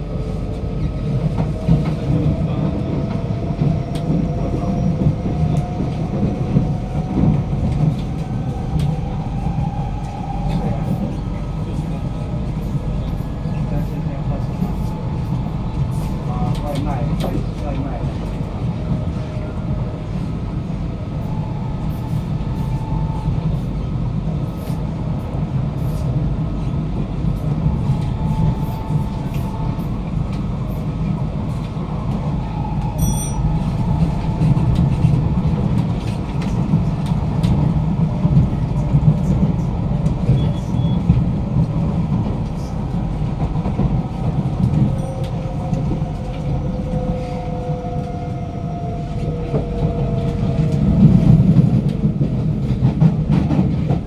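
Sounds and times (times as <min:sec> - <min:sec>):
train wheels rumbling: 0:00.0 - 0:54.0.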